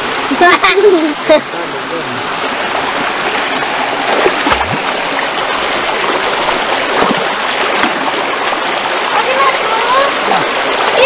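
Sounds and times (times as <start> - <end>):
river water flowing: 0.0 - 11.0
brief water splashes: 4.0 - 5.0.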